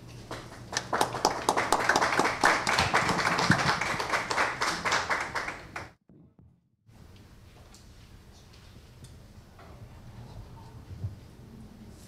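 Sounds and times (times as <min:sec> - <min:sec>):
audience applauding: 0:00.3 - 0:06.0.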